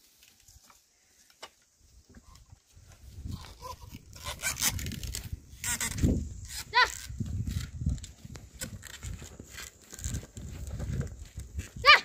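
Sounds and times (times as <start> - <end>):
oxen pulling a plough: 6.6 - 12.0.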